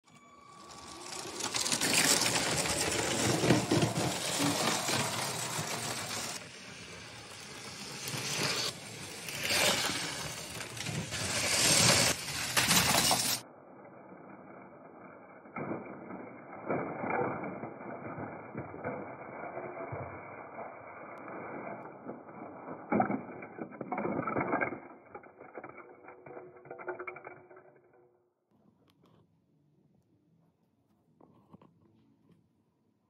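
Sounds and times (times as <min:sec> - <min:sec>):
toy trains rattling on track: 0:00.1 - 0:13.4, 0:14.9 - 0:28.0
plastic bricks clattering: 0:00.5 - 0:13.4, 0:21.9 - 0:28.0.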